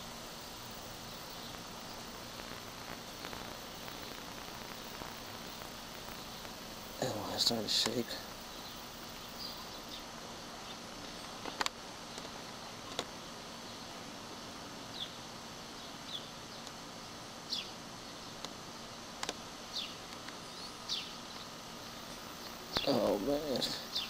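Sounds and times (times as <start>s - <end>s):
bird chirping: 0.0s - 12.2s, 14.9s - 16.7s, 17.5s - 18.4s, 19.7s - 24.0s
steady hiss: 0.0s - 24.0s
sharp clicks: 2.3s - 6.6s, 19.2s - 19.4s.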